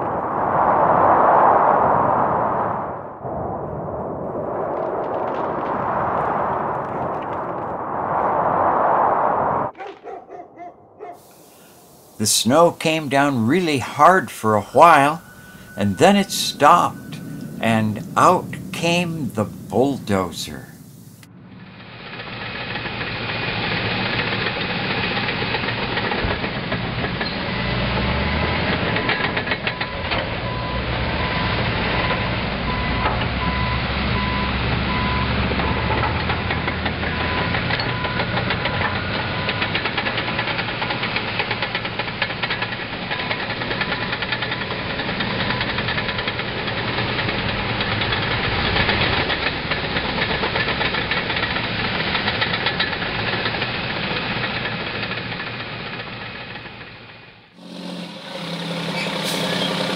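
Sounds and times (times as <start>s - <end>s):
bulldozer diesel engine: 11.8s - 21.0s, 21.6s - 59.9s
reversing alarm beeping: 14.3s - 19.8s, 29.0s - 36.1s, 37.0s - 39.8s.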